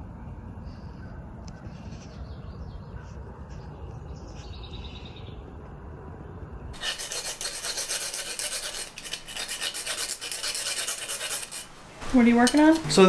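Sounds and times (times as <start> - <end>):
bird chirp: 0.6 - 5.6
file scraping wire screen: 6.8 - 11.8.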